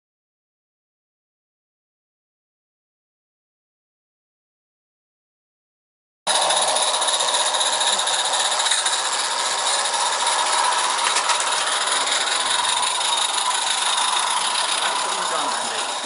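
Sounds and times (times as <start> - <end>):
model locomotives buzzing: 6.3 - 16.0.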